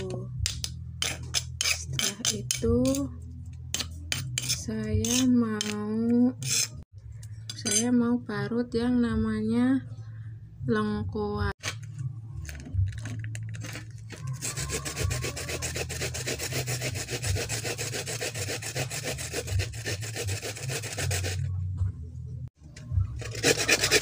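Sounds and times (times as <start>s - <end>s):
root grated on metal grater: 13.6s - 21.5s, 23.2s - 24.0s.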